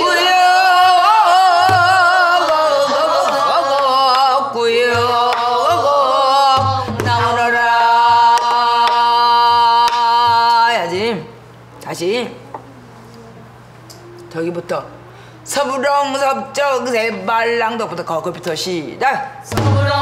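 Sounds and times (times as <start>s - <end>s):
woman singing with vibrato: 0.0s - 11.4s, 19.5s - 20.0s.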